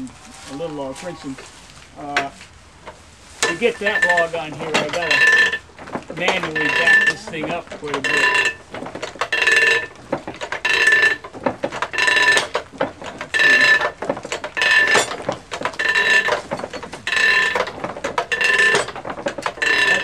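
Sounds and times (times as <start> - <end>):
metal ratchet lever clattering: 6.2 - 7.2, 7.8 - 20.0.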